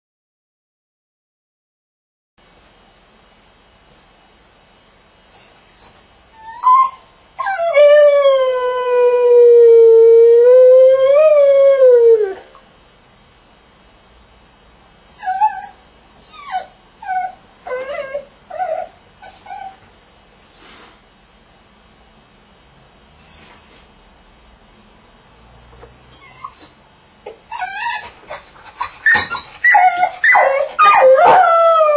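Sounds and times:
dog howling: 6.4 - 12.5, 27.5 - 31.9
dog short cries: 27.6 - 31.5.

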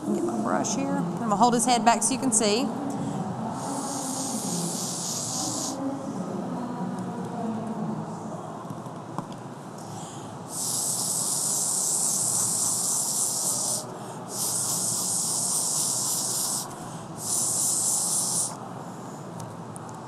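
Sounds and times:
blow pen spraying hiss: 3.6 - 5.8, 10.5 - 18.6.

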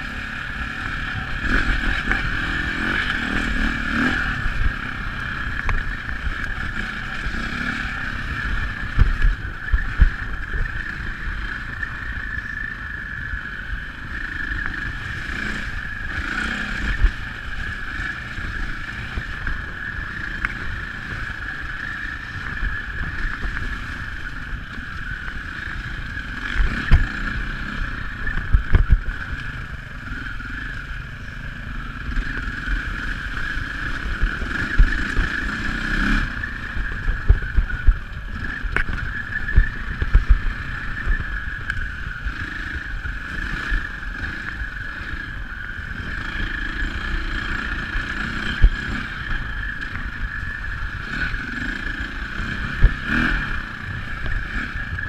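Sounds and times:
dirt bike engine running: 0.0 - 55.0.

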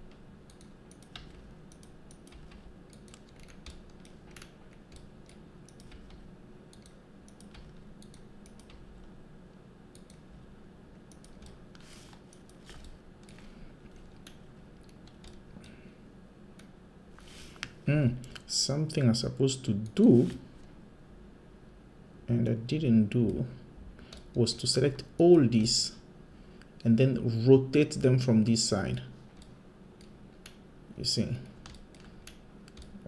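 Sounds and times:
low steady hum: 0.0 - 33.0
keyboard and mouse clicks: 0.1 - 9.1, 9.9 - 10.3, 11.1 - 15.8, 31.6 - 33.0.

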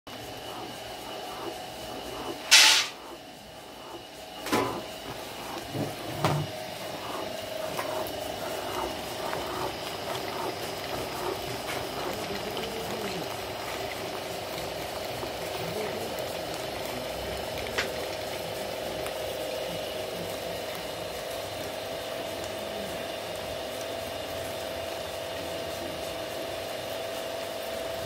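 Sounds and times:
stone mill grinding hum: 0.1 - 28.0
short loud hiss: 2.5 - 3.0
knocks and thumps: 5.6 - 6.6.

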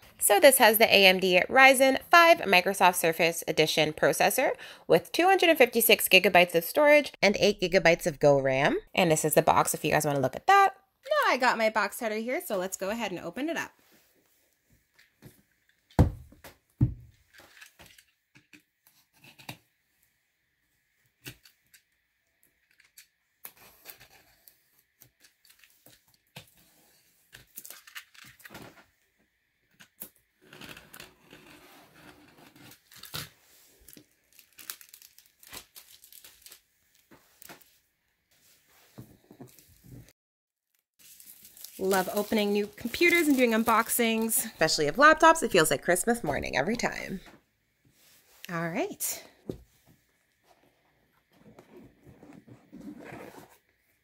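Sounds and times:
plastic wrap crinkling and tearing: 27.4 - 28.7, 32.7 - 37.7, 41.0 - 46.2.

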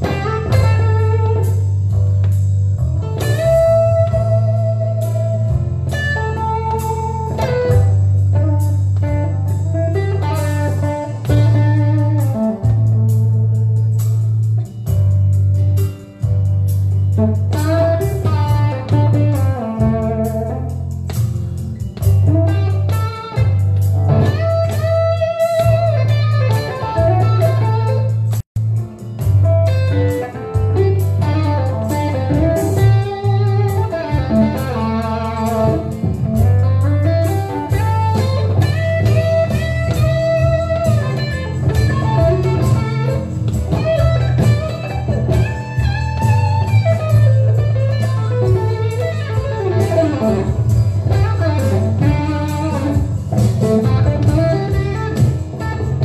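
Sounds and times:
electric guitar blues lead: 0.0 - 56.0
low bass part: 0.0 - 56.0.

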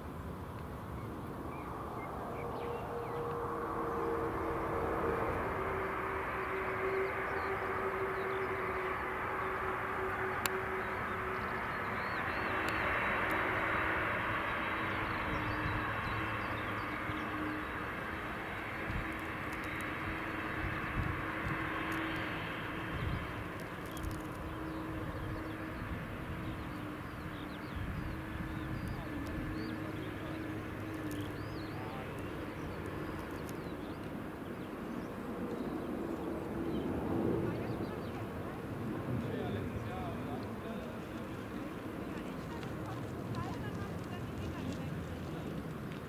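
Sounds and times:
faint engine hum: 0.0 - 46.0
jet engines rushing: 0.0 - 46.0
small birds chirping: 21.9 - 38.6.

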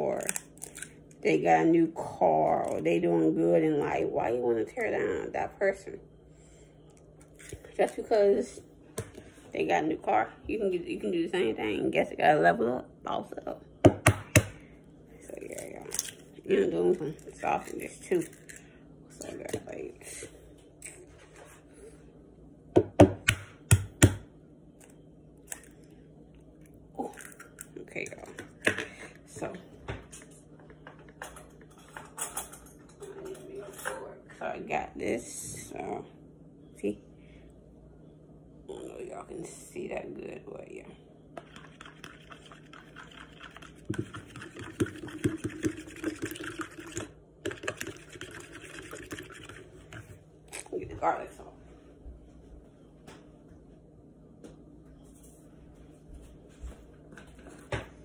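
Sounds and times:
fork beating eggs in a bowl: 41.4 - 50.2.

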